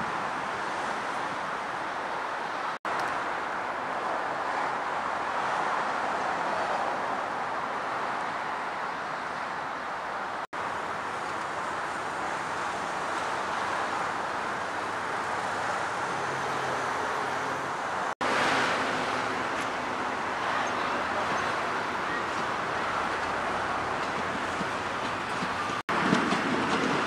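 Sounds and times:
train wheels rumbling on rails: 10.6 - 27.0.

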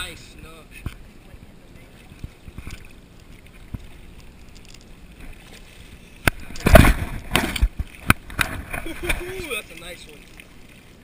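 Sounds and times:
water: 0.0 - 11.0
wind: 0.0 - 11.0
fish splashing at surface: 2.4 - 10.6.

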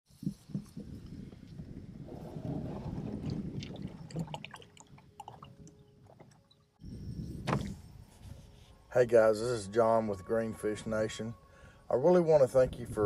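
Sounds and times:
kayak hull scraping on bank: 1.9 - 4.4.

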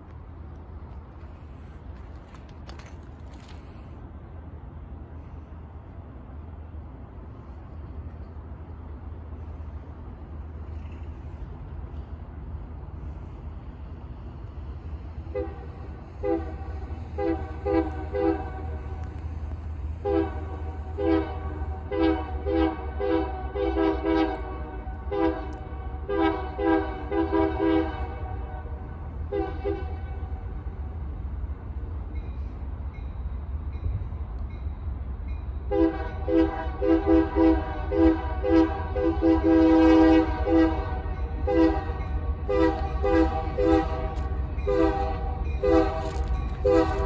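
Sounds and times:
locomotive low rumble: 0.0 - 47.0
train air horn blasts: 15.2 - 19.1, 20.0 - 30.5, 35.7 - 47.0.

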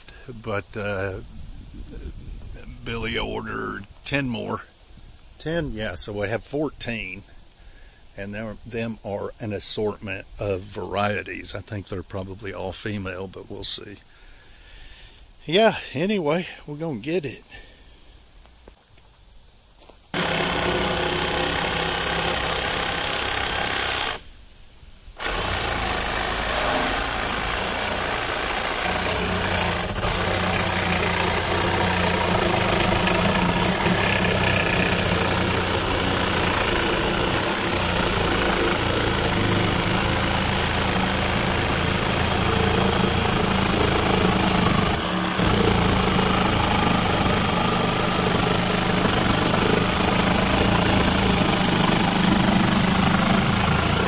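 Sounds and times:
engine running: 20.1 - 24.2, 25.2 - 54.0.

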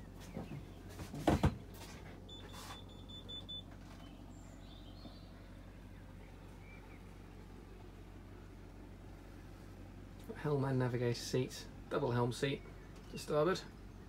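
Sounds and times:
low steady hum: 0.0 - 14.0
faint high-pitched beep: 2.3 - 3.7.

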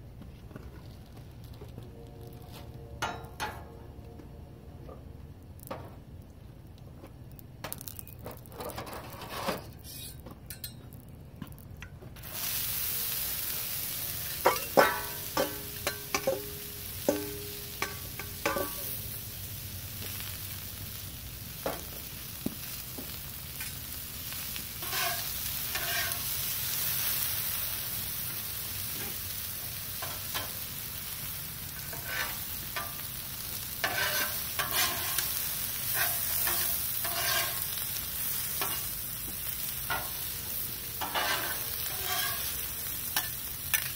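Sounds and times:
metal spatulas scraping on griddle: 8.5 - 10.8, 12.3 - 19.0, 24.4 - 27.2, 30.0 - 30.6, 31.7 - 43.9
vegetables sizzling on griddle: 12.2 - 43.9.

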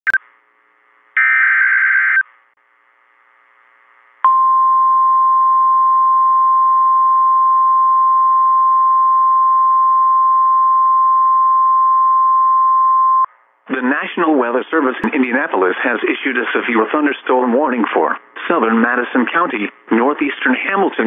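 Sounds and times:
data tone bursts: 1.2 - 2.2.

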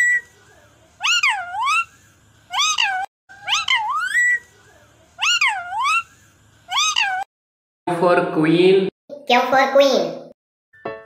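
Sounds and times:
parrot wailing calls: 0.0 - 0.4, 1.0 - 4.6, 5.2 - 7.3.

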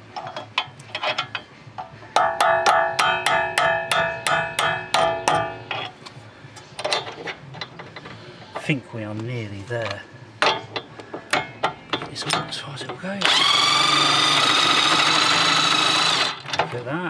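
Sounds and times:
hammer striking metal punch: 2.2 - 5.7.

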